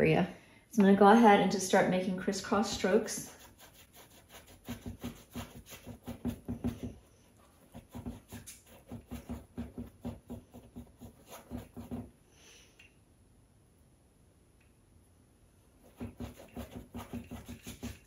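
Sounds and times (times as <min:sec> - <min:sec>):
paintbrush scrubbing on canvas: 0:02.6 - 0:12.1, 0:15.8 - 0:18.0.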